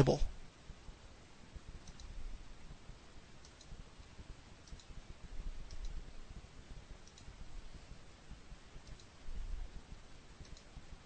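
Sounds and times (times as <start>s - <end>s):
computer mouse clicks: 1.8s - 2.2s, 3.4s - 5.0s, 5.6s - 6.1s, 7.0s - 7.4s, 8.8s - 9.3s, 10.4s - 10.8s.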